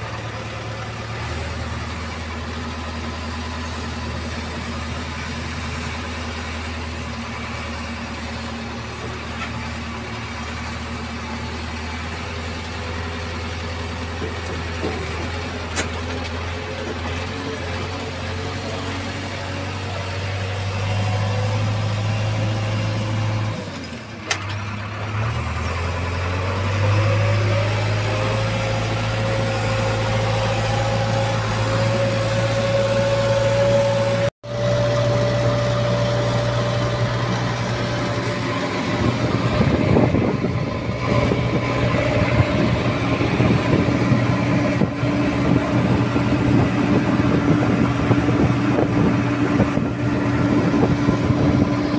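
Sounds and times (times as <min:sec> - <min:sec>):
diesel engine running: 0:00.0 - 0:51.9
engine whine rising in pitch: 0:00.0 - 0:51.9.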